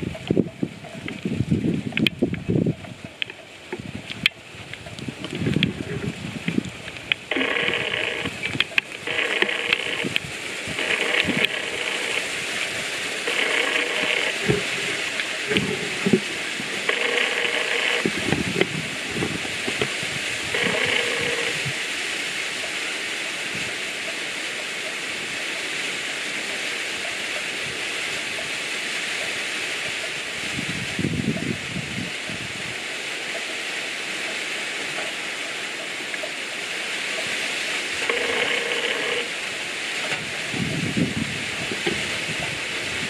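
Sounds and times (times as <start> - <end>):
wind and rustling: 0.0 - 43.0.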